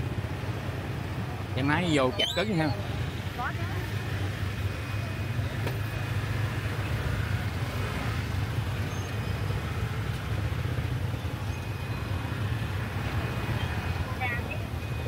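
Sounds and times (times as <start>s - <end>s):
motor scooters idling: 0.0s - 15.0s.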